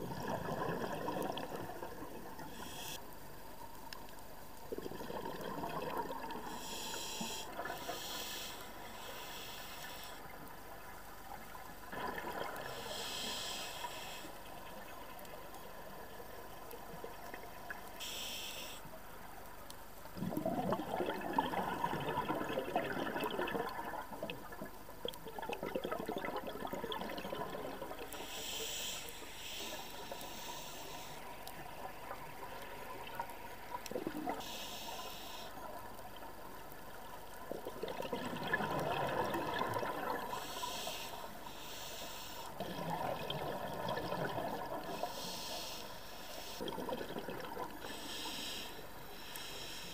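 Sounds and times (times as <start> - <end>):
hissing regulator inhale: 2.5 - 3.0, 6.5 - 10.3, 12.6 - 14.4, 18.0 - 18.9, 28.1 - 31.4, 34.4 - 35.6, 40.3 - 42.8, 44.9 - 46.7, 47.8 - 49.9.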